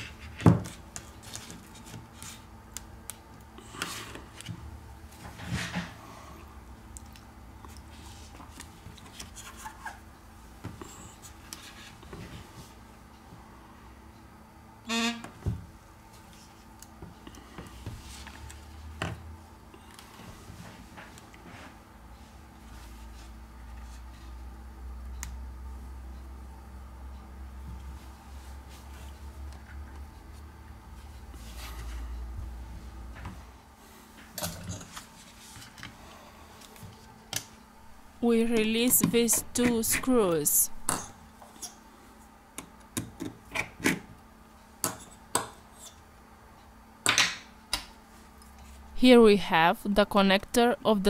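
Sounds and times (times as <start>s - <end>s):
hands rubbing and shuffling parts: 7.9s - 10.0s
phone vibration buzz: 14.8s - 15.4s.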